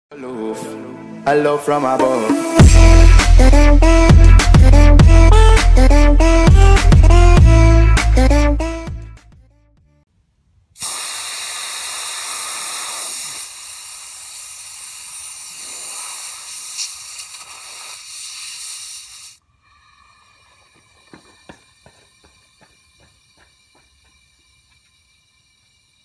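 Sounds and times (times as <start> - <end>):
compressed air hissing from hose: 10.8 - 26.0.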